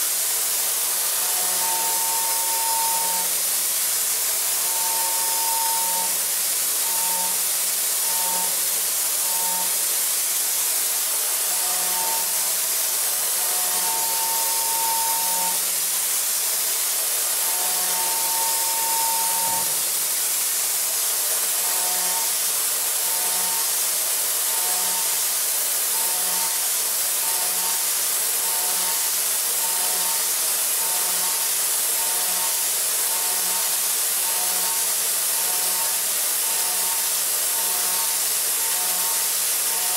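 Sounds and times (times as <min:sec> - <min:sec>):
milling cutter tone: 0:01.1 - 0:03.4, 0:04.6 - 0:06.2, 0:06.8 - 0:08.6, 0:09.2 - 0:09.8, 0:11.4 - 0:12.4, 0:13.1 - 0:15.7, 0:17.4 - 0:19.8, 0:25.9 - 0:26.6, 0:30.8 - 0:32.5, 0:33.1 - 0:37.0, 0:37.6 - 0:39.9.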